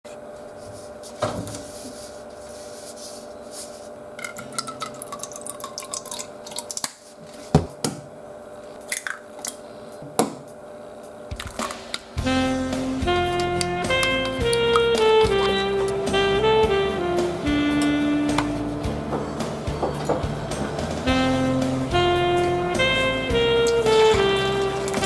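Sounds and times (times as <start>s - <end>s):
eggs cracking on a bowl: 4.2s - 7.0s, 8.8s - 9.6s
liquid trickling into a bowl: 4.2s - 7.0s.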